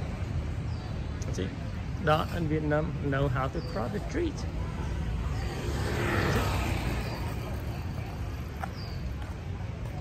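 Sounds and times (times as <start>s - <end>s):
low street rumble: 0.0s - 10.0s
vehicle passing: 4.4s - 9.4s.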